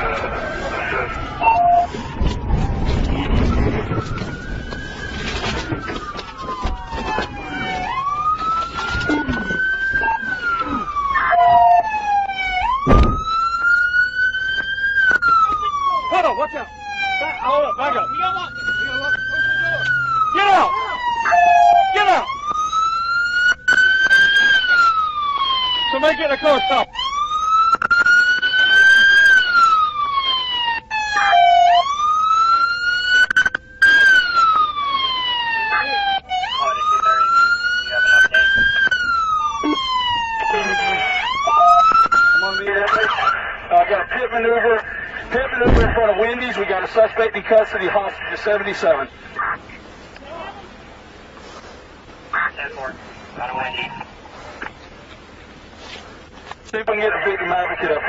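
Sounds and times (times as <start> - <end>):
police siren wailing: 0.0 - 49.6
steady beep: 1.4 - 1.9, 21.3 - 21.9, 41.5 - 41.8
loud thump: 12.8 - 13.3, 45.6 - 46.0.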